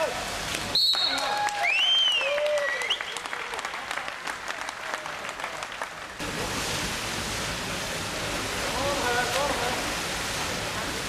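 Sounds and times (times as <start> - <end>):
applause: 0.5 - 6.2.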